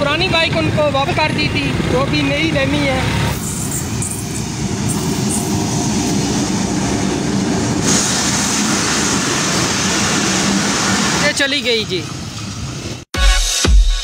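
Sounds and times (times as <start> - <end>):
passenger train passing: 0.0 - 13.1.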